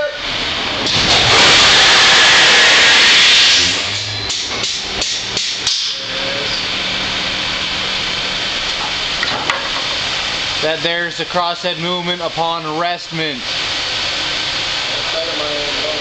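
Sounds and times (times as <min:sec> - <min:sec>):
steady machinery hum: 0:00.0 - 0:16.0
loud rushing hiss: 0:00.2 - 0:09.2.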